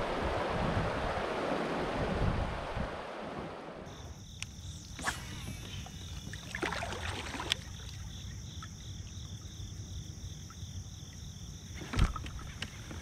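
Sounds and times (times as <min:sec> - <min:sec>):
constant high buzz: 0:03.9 - 0:13.0
insects chirping: 0:03.9 - 0:13.0.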